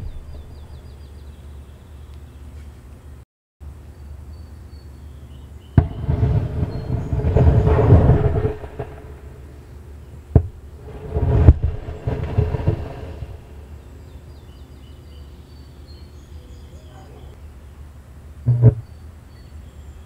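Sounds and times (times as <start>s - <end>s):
rushing of venting gas: 5.8s - 13.7s.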